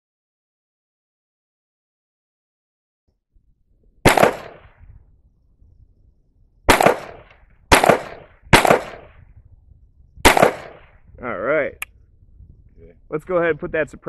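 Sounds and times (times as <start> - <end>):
pistol shots echoing: 4.0 - 4.8, 6.7 - 9.2, 10.2 - 11.0.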